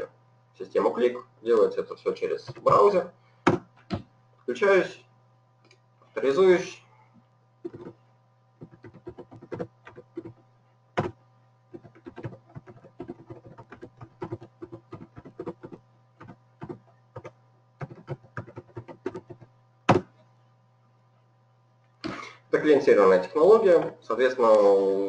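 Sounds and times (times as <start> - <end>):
electrical hum: 0.0 - 25.0
keyboard and mouse clicking: 8.6 - 10.4, 11.8 - 20.0.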